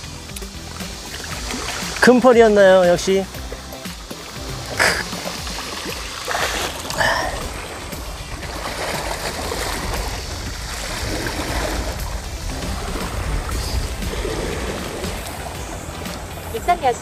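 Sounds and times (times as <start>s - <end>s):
sea water washing: 0.0s - 17.0s
wind rumbling on microphone: 4.4s - 17.0s.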